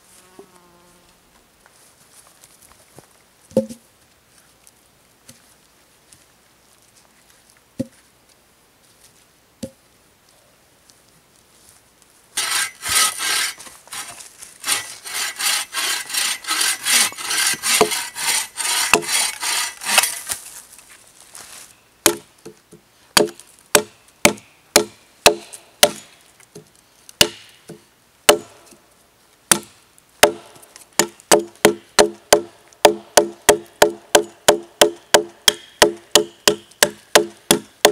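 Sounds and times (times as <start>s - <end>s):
saw rasping through wood: 12.4s - 20.2s
hatchet chopping wood: 12.4s - 20.3s, 22.0s - 28.8s, 29.5s - 37.9s.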